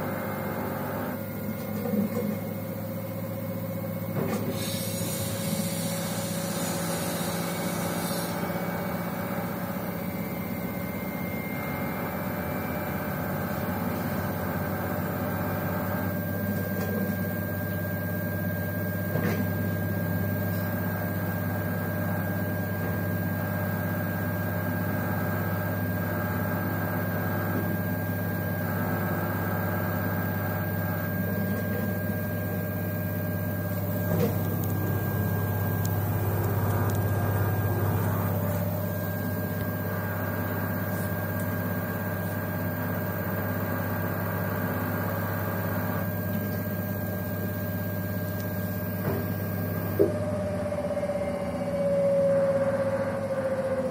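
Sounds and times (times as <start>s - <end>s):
motor whine: 0.0s - 53.9s
washing machine spin cycle hum: 0.0s - 53.9s
faint higher whine: 9.8s - 13.3s.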